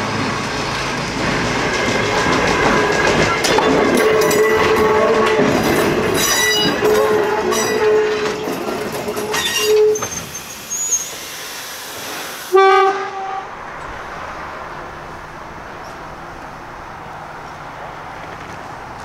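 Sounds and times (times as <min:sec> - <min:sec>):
electric locomotive rolling past: 0:00.0 - 0:19.0
rail clatter: 0:00.0 - 0:19.0
pitched squeal: 0:01.6 - 0:16.3.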